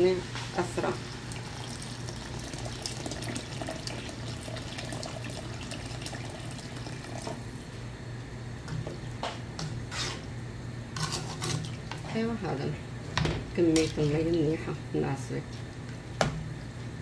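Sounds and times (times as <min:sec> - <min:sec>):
water pouring into pot: 0:01.1 - 0:07.5.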